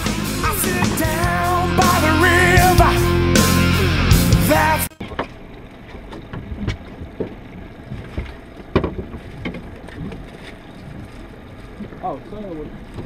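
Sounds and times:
rock song: 0.0s - 5.0s.

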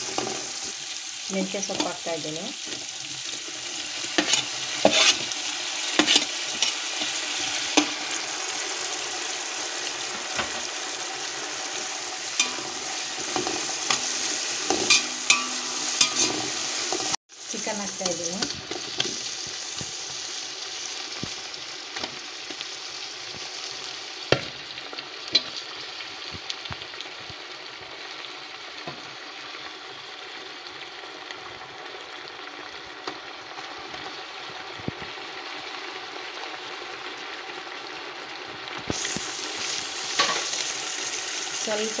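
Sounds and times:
chicken sizzling in hot oil: 0.0s - 42.0s
metal spatula knocking pot: 12.4s - 12.8s, 14.7s - 16.3s.

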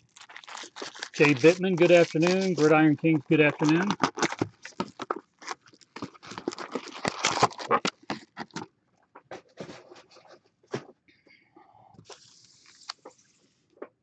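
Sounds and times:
trading cards clicking and rustling: 0.4s - 8.6s.

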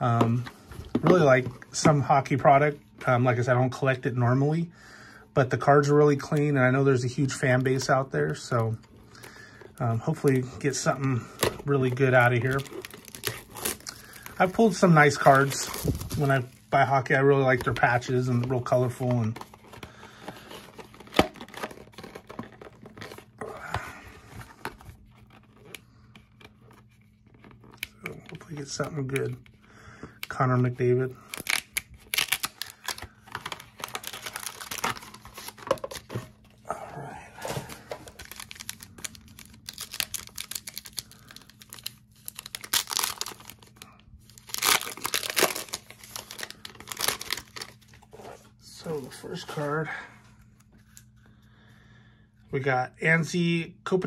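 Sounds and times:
card pack rustling and tearing: 7.0s - 29.4s, 30.2s - 49.8s.

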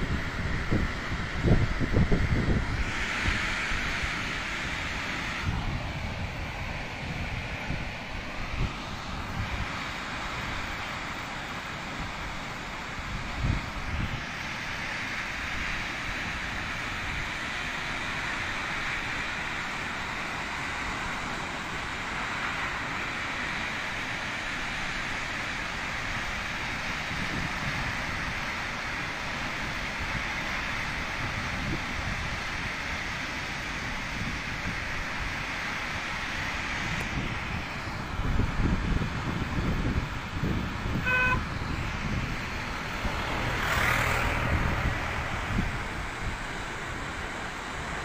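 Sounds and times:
wind buffeting microphone: 0.0s - 4.7s, 36.7s - 47.9s
waterfall roaring: 0.0s - 48.0s.

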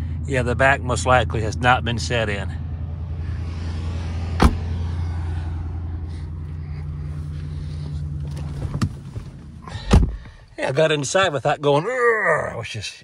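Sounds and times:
car engine idling: 0.0s - 11.7s
car door shutting: 4.4s - 4.7s, 8.2s - 10.4s.

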